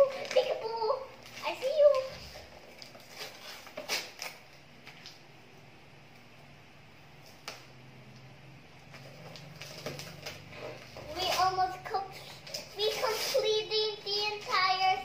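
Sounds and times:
wrapping paper rustling: 0:00.0 - 0:05.2, 0:08.9 - 0:13.7.

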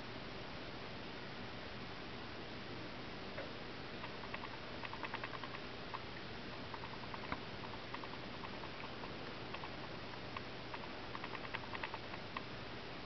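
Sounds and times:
bird grinding its beak: 0:04.0 - 0:06.0, 0:06.6 - 0:12.4.

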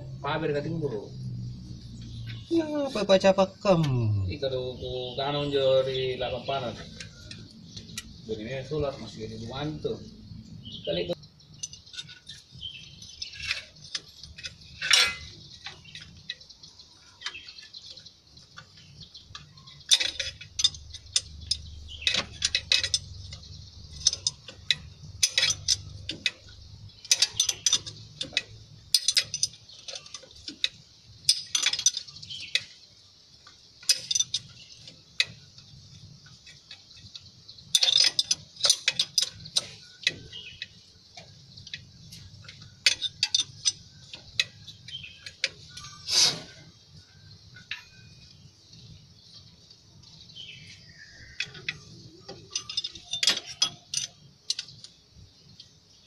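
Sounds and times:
wrenches clicking on metal nuts: 0:11.6 - 0:16.5, 0:18.6 - 0:32.8, 0:33.5 - 0:46.6, 0:50.6 - 0:55.0.

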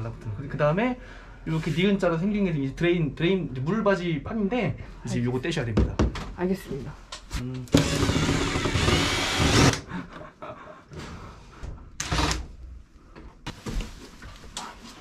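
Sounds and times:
cordless drill running: 0:07.7 - 0:09.8.

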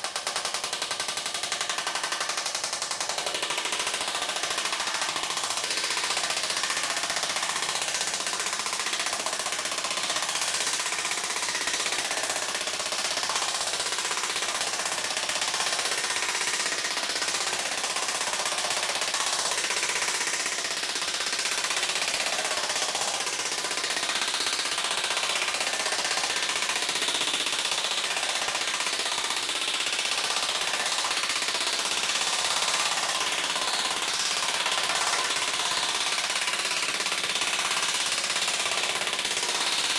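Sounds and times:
air hammer pounding sheet metal: 0:00.0 - 0:39.9.

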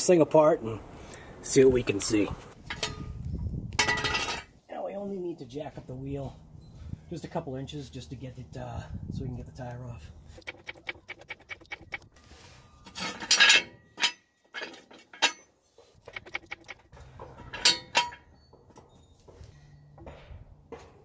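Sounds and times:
metal clanks of jack stand: 0:02.6 - 0:03.2, 0:12.8 - 0:18.9
jack clicking: 0:10.4 - 0:12.1.

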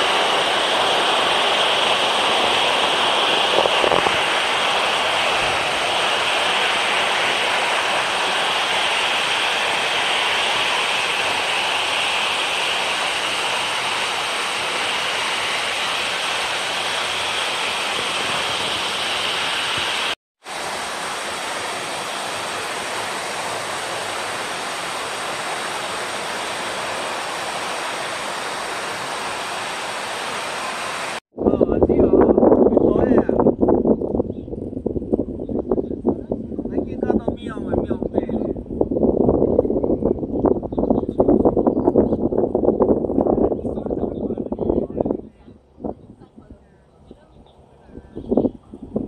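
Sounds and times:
high-pitched hiss: 0:00.0 - 0:31.2
waterfall rushing: 0:00.0 - 0:31.2.

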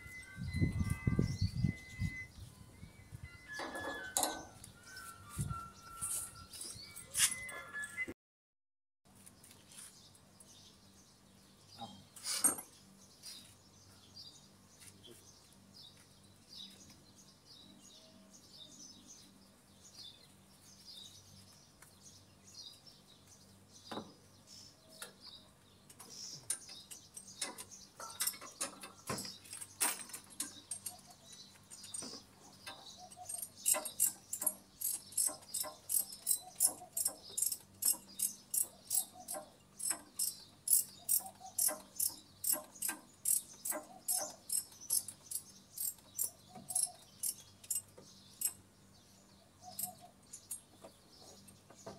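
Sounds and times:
birds chirping softly: 0:09.1 - 0:51.9
ratchet wrench clicking: 0:33.2 - 0:48.6.

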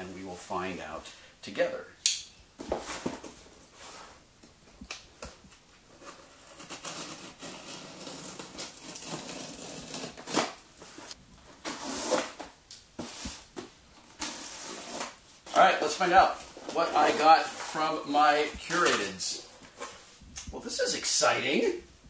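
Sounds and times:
cardboard rustling: 0:02.6 - 0:20.3
box cutter slitting tape: 0:06.4 - 0:10.6.

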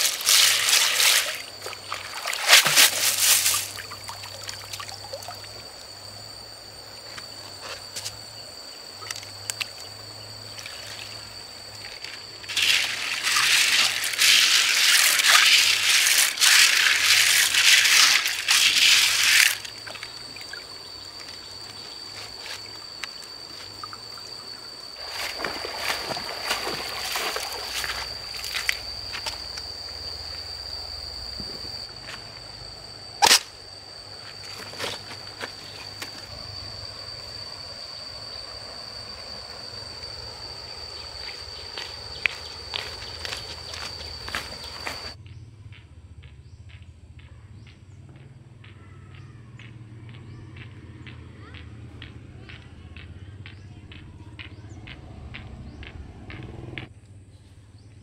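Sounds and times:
water splashing and pouring: 0:00.0 - 0:05.5, 0:12.5 - 0:20.0, 0:25.0 - 0:28.8.

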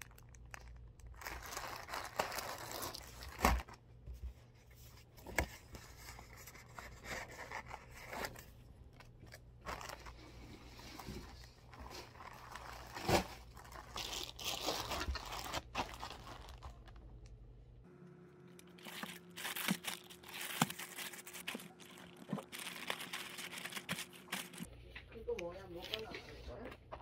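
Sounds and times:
sticker sheets crinkling: 0:00.0 - 0:03.7, 0:09.3 - 0:17.1, 0:18.7 - 0:24.7
plastic garment bags rustling: 0:00.0 - 0:03.8, 0:09.6 - 0:17.0, 0:18.8 - 0:24.7.

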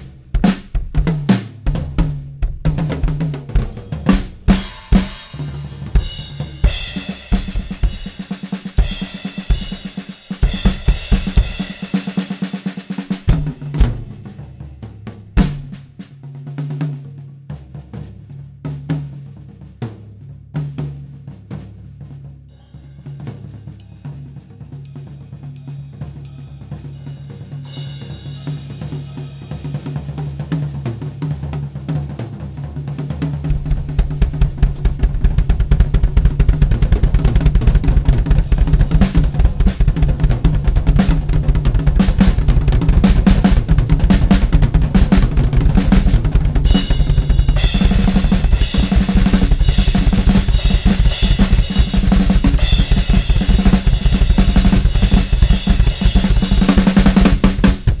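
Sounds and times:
drum kit playing: 0:00.0 - 0:58.0
cymbal hits: 0:23.8 - 0:29.7.

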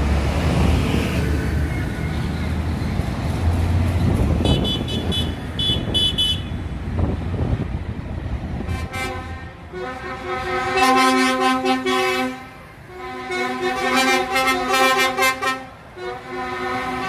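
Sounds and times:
tractor engines rumbling: 0:00.0 - 0:17.0
lorry air horn blasts: 0:08.7 - 0:17.0.

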